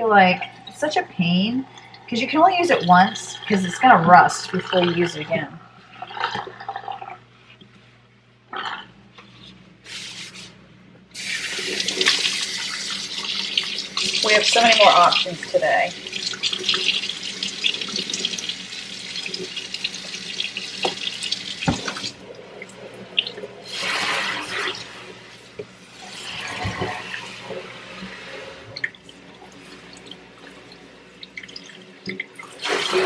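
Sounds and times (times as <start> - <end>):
faucet running into steel sink: 11.2 - 33.0
faucet shut off knock: 20.8 - 22.1
sprayer water bursts: 23.6 - 25.2, 32.6 - 33.0.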